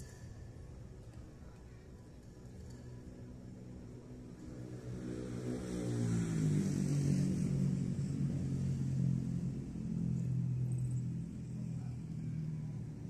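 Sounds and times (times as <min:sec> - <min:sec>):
vehicle engine approaching: 0:04.4 - 0:13.0.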